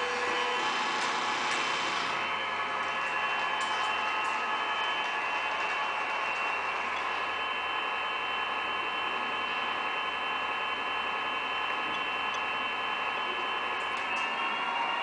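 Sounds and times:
small electric motor whine: 0.0 - 10.4.

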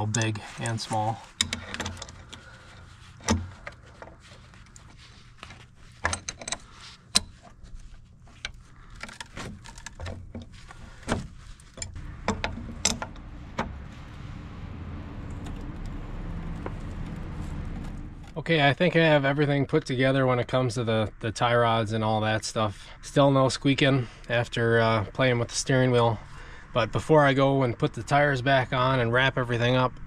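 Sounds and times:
low steady rumble: 0.0 - 30.0
wrenches clinking on metal: 6.0 - 7.4.

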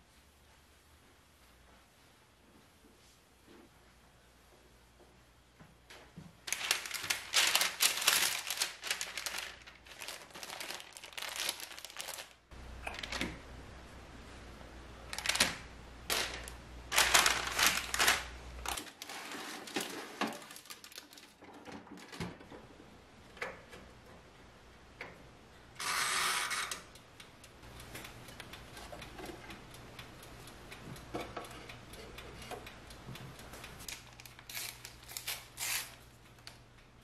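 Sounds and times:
baking paper crinkling: 6.5 - 13.2, 15.1 - 21.4, 33.9 - 36.6.

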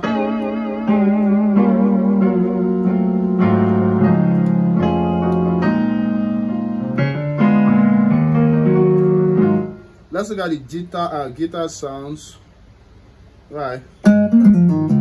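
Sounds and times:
low bass notes: 0.0 - 9.8, 14.0 - 15.0
keyboard chords: 0.0 - 10.1, 14.0 - 15.0.

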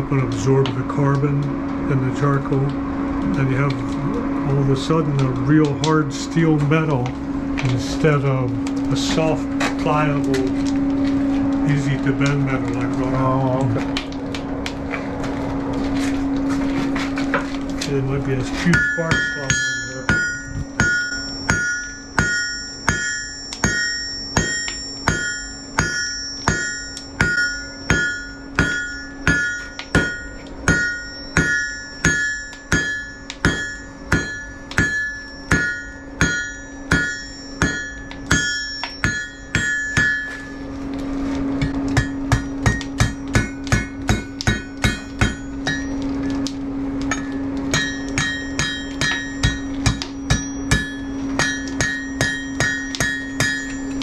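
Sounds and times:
steady low hum: 0.0 - 54.0
hammer striking iron on anvil: 18.7 - 40.6, 41.6 - 46.0, 47.1 - 54.0.

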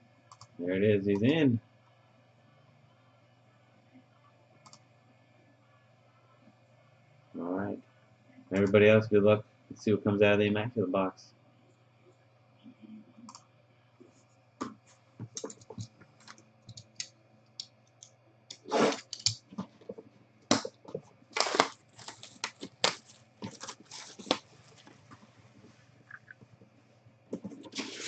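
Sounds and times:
plastic wrap tearing: 18.6 - 19.4, 21.3 - 25.1, 27.6 - 28.0
plastic wrap crinkling: 20.5 - 26.3.

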